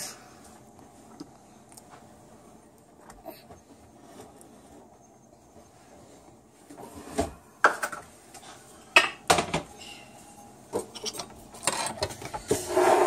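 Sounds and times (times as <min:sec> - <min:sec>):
kitchen items clinking and knocking: 0:06.9 - 0:08.1, 0:08.9 - 0:09.8, 0:10.7 - 0:13.0.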